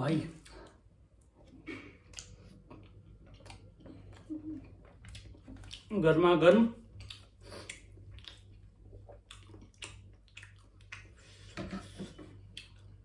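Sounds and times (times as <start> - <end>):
chewing: 0.4 - 5.9, 6.9 - 13.0.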